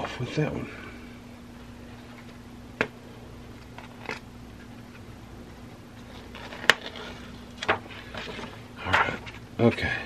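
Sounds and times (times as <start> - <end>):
low steady hum: 0.0 - 10.0
paper rustle: 6.0 - 9.4.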